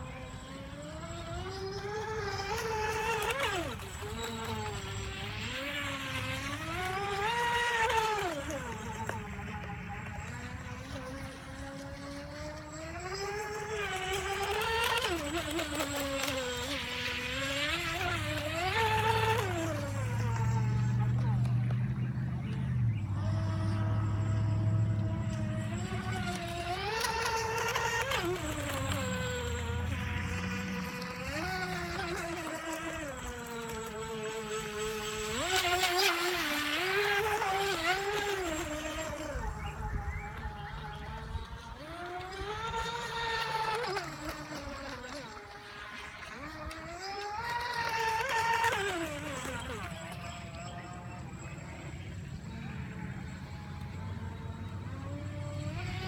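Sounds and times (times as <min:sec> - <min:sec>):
electric motor whining: 0:00.0 - 0:56.0.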